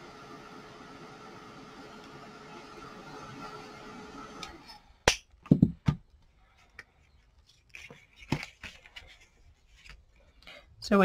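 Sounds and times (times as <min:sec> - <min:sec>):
heat tool blowing: 0:00.0 - 0:05.0.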